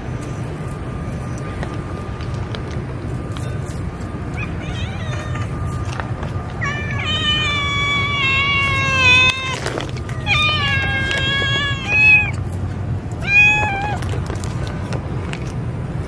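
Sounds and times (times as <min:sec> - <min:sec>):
steady low rumble: 0:00.0 - 0:16.0
kitten meowing: 0:04.3 - 0:12.4, 0:13.2 - 0:14.3.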